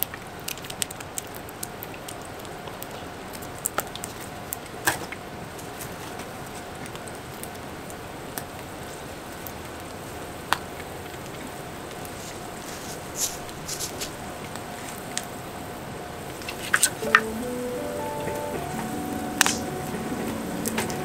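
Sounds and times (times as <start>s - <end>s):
campfire crackling: 16.2s - 21.0s.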